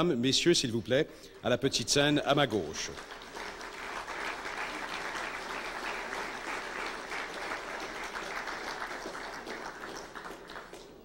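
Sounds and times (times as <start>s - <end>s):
audience applauding: 2.8s - 11.0s.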